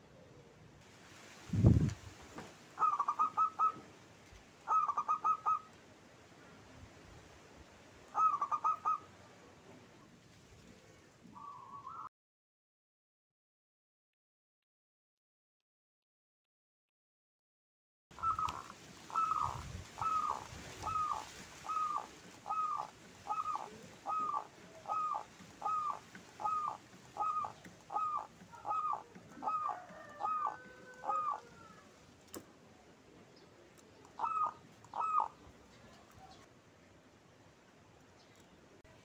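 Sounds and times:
dove cooing: 2.8s - 3.9s, 4.7s - 5.7s, 8.2s - 9.1s, 10.8s - 12.1s, 18.2s - 32.0s, 34.1s - 36.4s.

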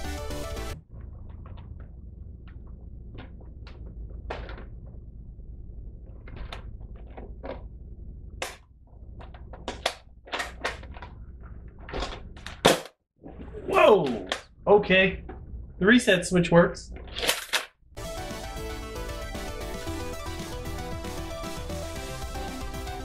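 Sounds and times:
low steady hum: 0.8s - 12.6s.

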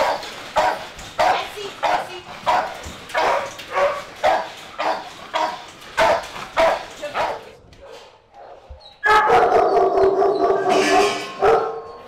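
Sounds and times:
dog barking: 0.0s - 11.9s
loud continuous din: 10.6s - 11.4s.

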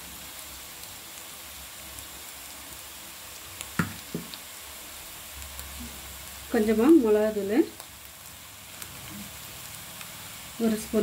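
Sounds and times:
onions frying in oil: 0.0s - 11.0s
oil popping: 3.7s - 4.4s.

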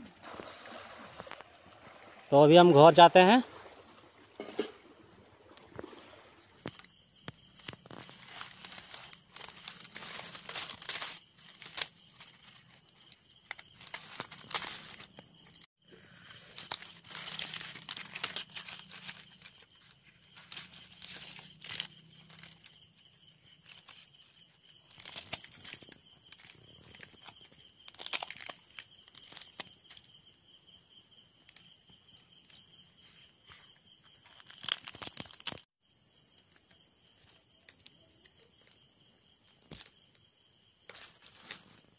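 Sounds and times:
crickets chirping: 0.0s - 41.9s
dry leaves crackling and tearing: 6.6s - 30.1s, 34.3s - 35.7s, 40.9s - 41.9s.

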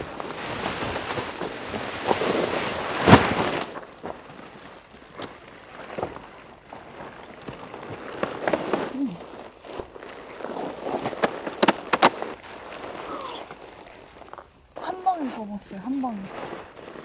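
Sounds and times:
tent frame snapping: 0.0s - 4.0s
tent fabric rustling and crinkling: 0.0s - 17.0s.

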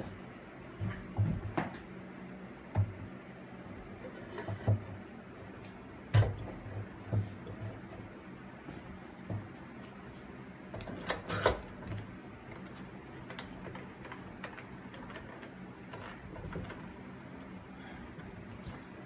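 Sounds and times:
clicks and knocks of handling: 10.7s - 17.5s.

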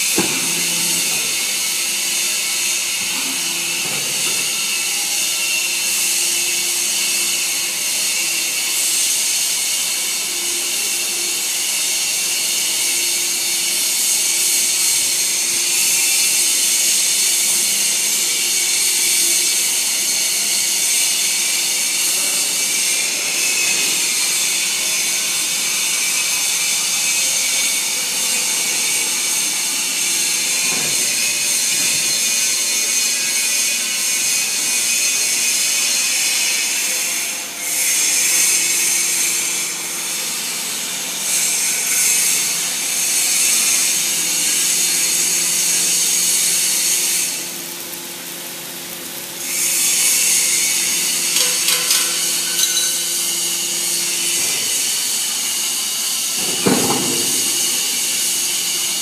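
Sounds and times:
baling press machine hum: 0.0s - 7.6s, 41.5s - 59.0s.

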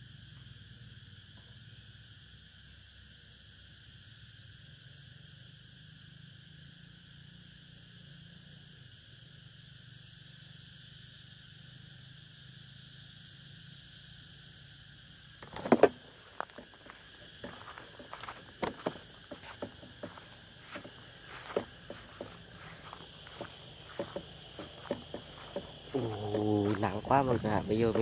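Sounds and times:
sharp knocks and rustles: 15.4s - 28.0s.

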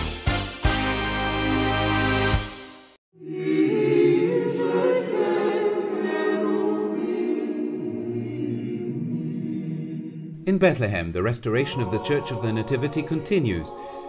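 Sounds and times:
choir singing unaccompanied: 3.2s - 10.4s, 11.2s - 14.0s.

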